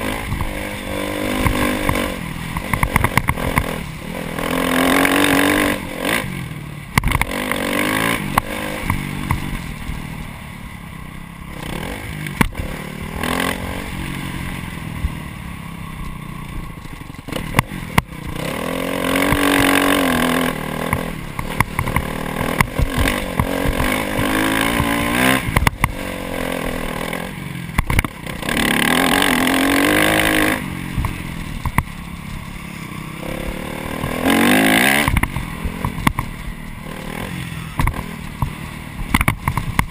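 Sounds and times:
dirt bike engine revving: 0:00.0 - 0:10.4, 0:11.0 - 0:39.9
knocks and clatter from bike: 0:01.3 - 0:03.8, 0:07.0 - 0:07.4, 0:08.3 - 0:10.0, 0:12.2 - 0:12.7, 0:16.0 - 0:18.5, 0:20.8 - 0:26.0, 0:27.7 - 0:28.4, 0:31.0 - 0:32.5, 0:35.0 - 0:36.4, 0:37.7 - 0:39.9.

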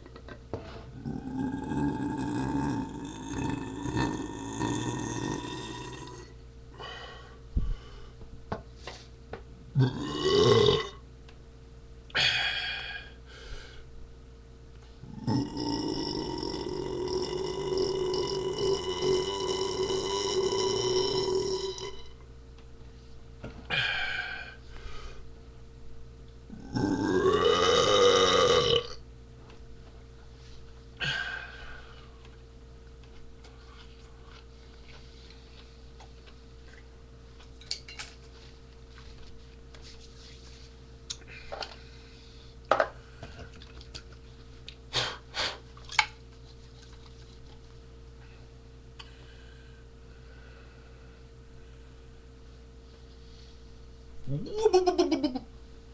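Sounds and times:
faint electrical hum: 0:00.0 - 0:55.9
man burping: 0:00.9 - 0:06.4, 0:09.7 - 0:11.0, 0:15.0 - 0:22.2, 0:26.5 - 0:29.0, 0:54.2 - 0:55.4.

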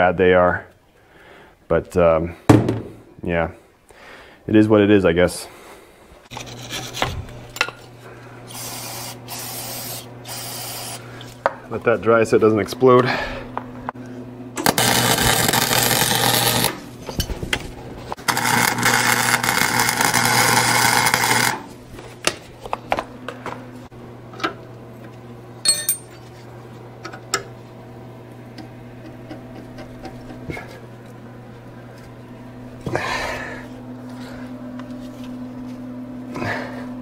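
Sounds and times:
arc welder crackling and sizzling: 0:08.5 - 0:11.1, 0:14.5 - 0:22.0
metal tools clicking and tapping: 0:25.7 - 0:26.2.

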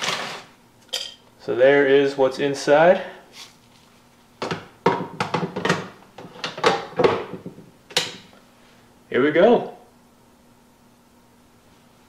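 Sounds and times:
plastic knocks and clatters: 0:04.4 - 0:08.2.

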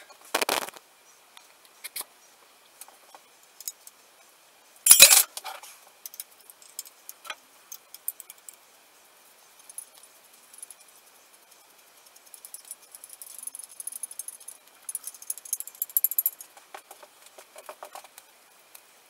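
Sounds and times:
metal tools jangling: 0:04.9 - 0:05.3.

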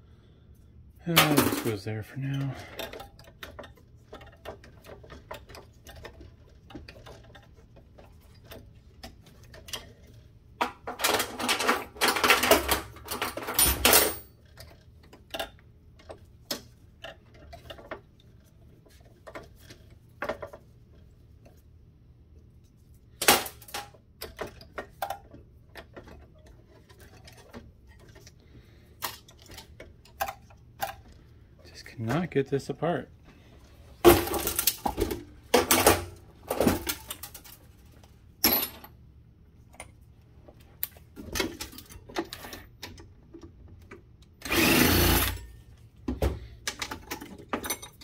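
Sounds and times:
hand tools clanking on metal: 0:01.0 - 0:06.2.

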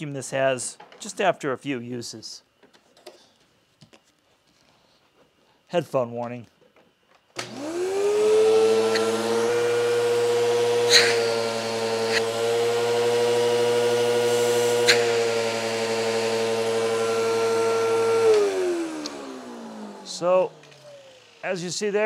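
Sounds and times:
vacuum cleaner motor whining: 0:07.4 - 0:22.0.

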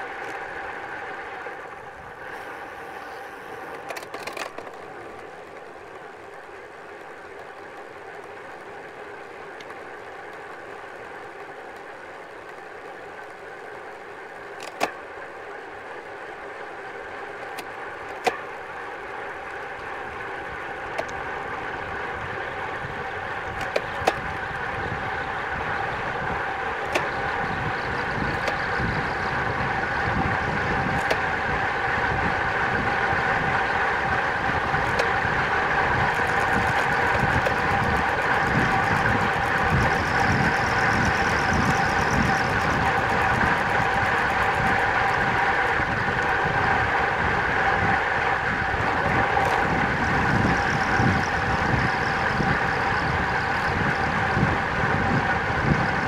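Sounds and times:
bike tyre hum: 0:00.0 - 0:56.0
steady whine: 0:00.0 - 0:56.0
wind rush: 0:19.1 - 0:56.0
wind buffeting microphone: 0:20.1 - 0:56.0.

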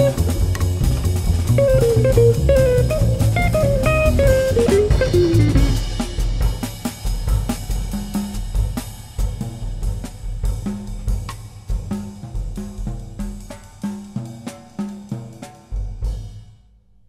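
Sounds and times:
electric guitar melody: 0:00.0 - 0:00.7, 0:01.5 - 0:06.1
bass: 0:00.0 - 0:13.5
drums: 0:00.0 - 0:17.0.

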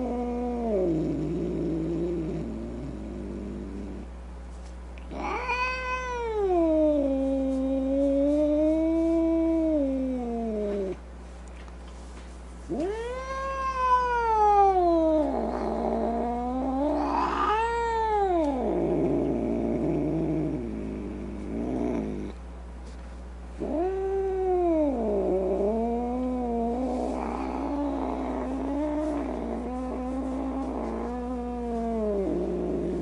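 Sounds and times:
cat crying: 0:05.1 - 0:07.0, 0:12.7 - 0:18.6.

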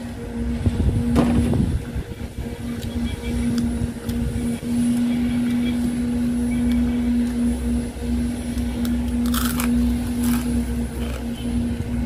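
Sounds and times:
low mechanical hum: 0:00.0 - 0:12.0
potato chip crunch: 0:09.2 - 0:10.5.

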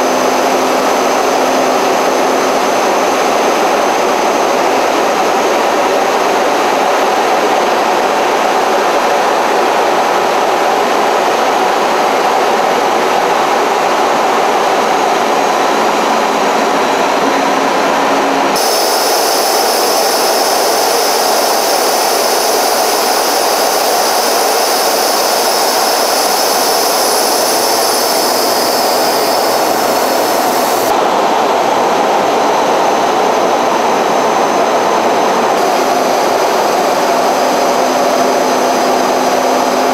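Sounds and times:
aircraft cabin engine roar: 0:00.0 - 0:09.0, 0:10.8 - 0:39.9
high whining tones: 0:18.6 - 0:30.9, 0:35.6 - 0:39.8.

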